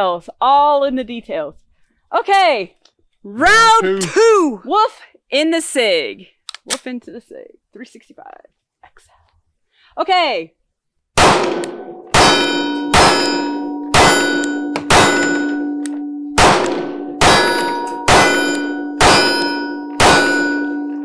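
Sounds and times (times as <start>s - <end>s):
pistol shots: 11.2s - 15.6s, 16.4s - 20.8s
metallic ringing: 11.8s - 21.0s.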